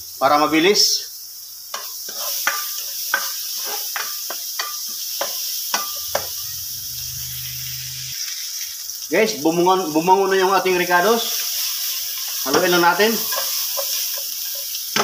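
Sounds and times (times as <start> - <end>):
food sizzling in a wok: 0.0 - 15.0
spatula scraping pan: 1.8 - 8.2, 11.4 - 15.0.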